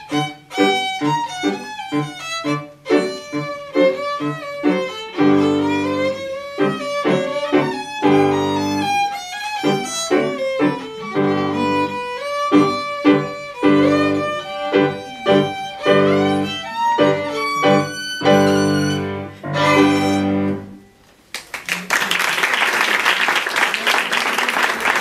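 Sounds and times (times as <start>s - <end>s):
violin playing: 0.0s - 20.9s
piano accompaniment: 0.0s - 21.0s
audience applauding: 21.3s - 25.0s.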